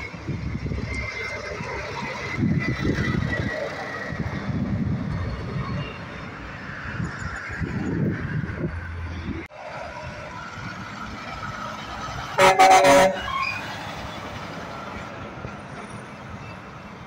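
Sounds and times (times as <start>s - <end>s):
truck engine and road noise: 0.0s - 17.0s
truck air horn blast: 12.4s - 13.5s.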